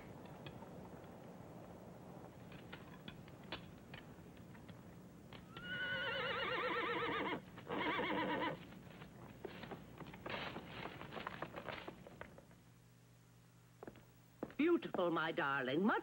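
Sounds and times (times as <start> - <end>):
horse whinnying: 5.5 - 8.6.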